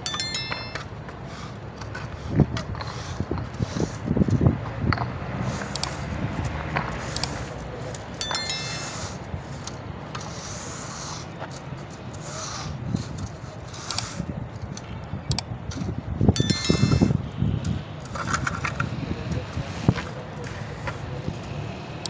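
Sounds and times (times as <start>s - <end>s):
ringing metallic clinks: 0.0s - 0.9s, 8.2s - 9.2s, 16.4s - 17.2s.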